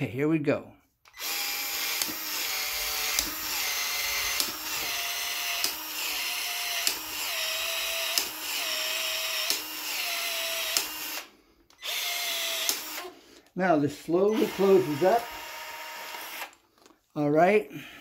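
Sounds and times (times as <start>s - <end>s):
expansion tool motor running: 1.1s - 13.1s, 14.2s - 16.6s.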